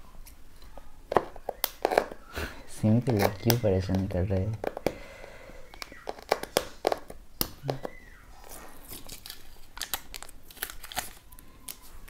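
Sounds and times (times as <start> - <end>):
fingernails peeling box seal: 5.8 - 7.1.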